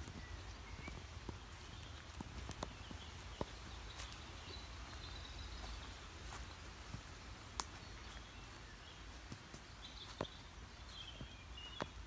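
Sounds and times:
twigs snapping underfoot: 0:07.5 - 0:07.8
faint bird chirps: 0:07.6 - 0:12.0.

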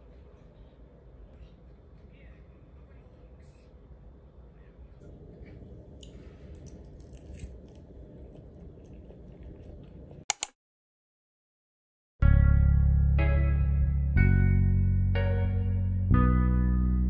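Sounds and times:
low room hum: 0:00.0 - 0:10.3
person chewing: 0:06.0 - 0:10.5
sharp fork clicks: 0:10.3 - 0:10.5.

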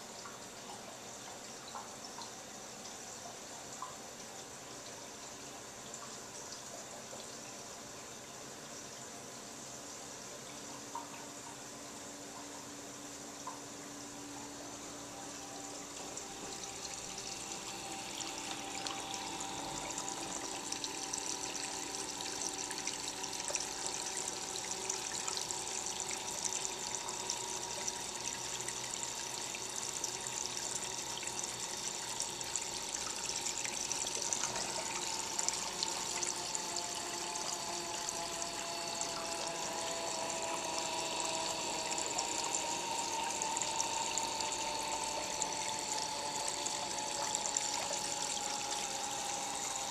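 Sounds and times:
faint steady hum: 0:00.0 - 0:49.9
water trickling and splashing: 0:14.4 - 0:49.9.

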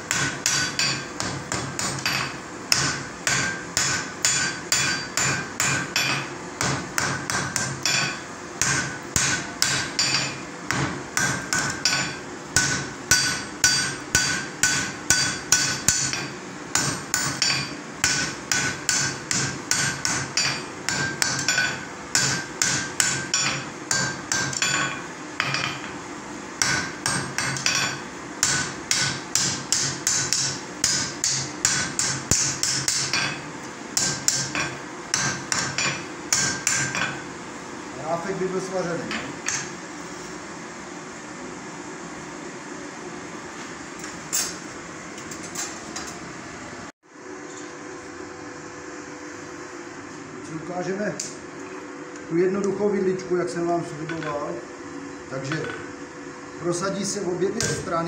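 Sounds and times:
hammer striking iron on anvil: 0:00.0 - 0:26.0, 0:26.6 - 0:37.2, 0:39.1 - 0:39.7, 0:57.6 - 0:57.9.

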